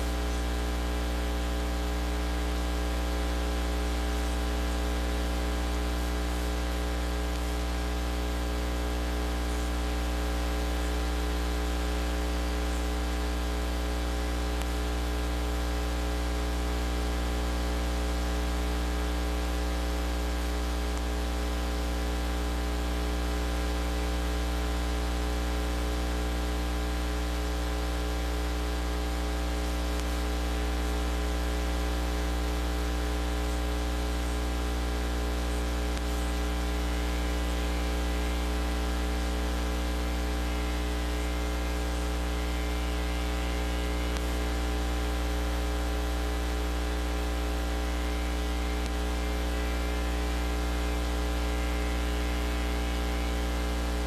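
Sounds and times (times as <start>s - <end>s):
electrical mains hum: 0.0s - 54.0s
constant hiss: 22.8s - 44.8s.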